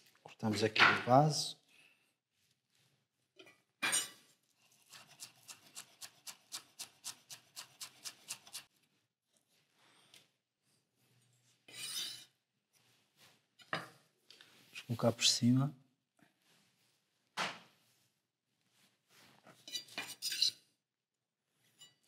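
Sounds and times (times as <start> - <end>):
knife scraping board: 11.7 - 12.4, 19.6 - 20.6.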